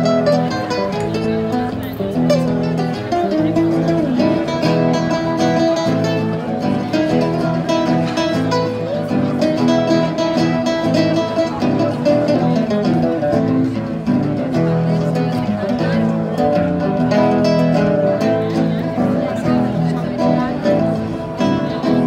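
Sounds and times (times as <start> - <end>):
acoustic guitar music: 0.0 - 22.0.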